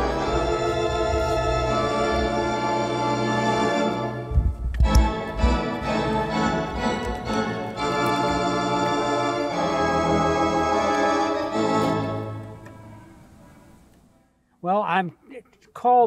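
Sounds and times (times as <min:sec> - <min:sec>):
pipe organ chords: 0:00.0 - 0:13.8
deep bass thumps: 0:04.3 - 0:05.7.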